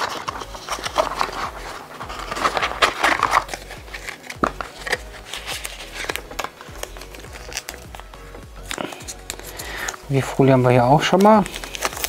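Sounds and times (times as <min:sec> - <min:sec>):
cardboard and plastic clicks: 0:00.0 - 0:07.9
plastic film crinkling: 0:00.0 - 0:12.0.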